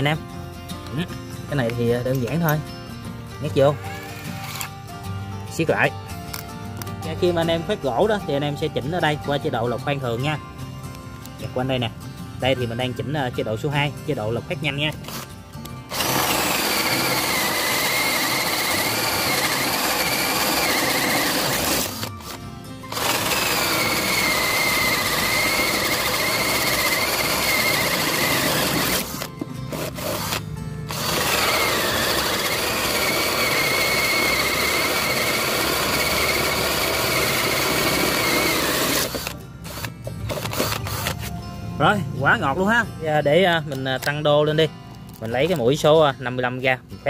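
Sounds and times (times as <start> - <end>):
cordless drill motor whine: 3.6 - 4.8, 15.9 - 41.2.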